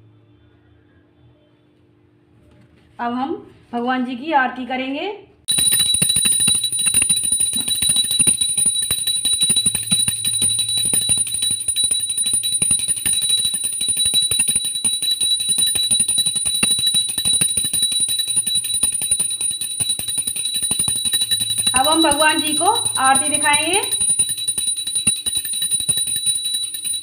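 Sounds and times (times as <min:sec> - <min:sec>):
hand bell ringing fast: 0:05.5 - 0:27.0.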